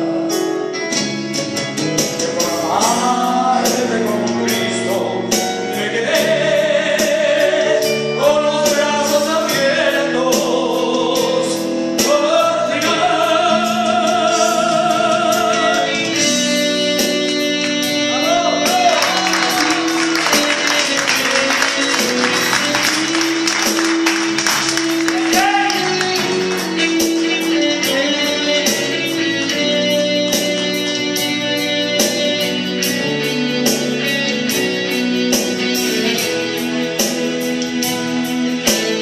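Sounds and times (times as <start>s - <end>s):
electronic keyboard: 0.0s - 39.0s
man singing a pop ballad: 2.2s - 17.1s, 20.5s - 22.2s.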